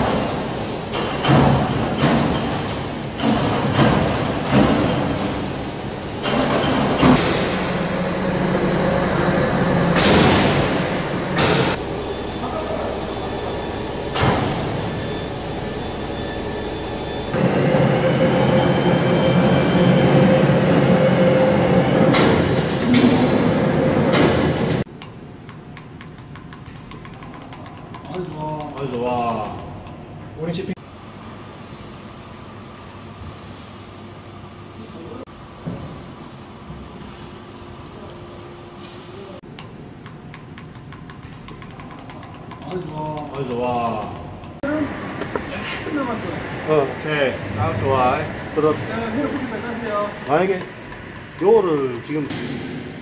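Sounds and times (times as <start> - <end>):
heavy factory machinery running: 0.0 - 24.9, 41.3 - 53.0
faint high whine: 10.6 - 22.0, 30.8 - 44.3
sharp clicks and knocks: 24.1 - 30.0, 39.4 - 45.5, 50.2 - 52.6.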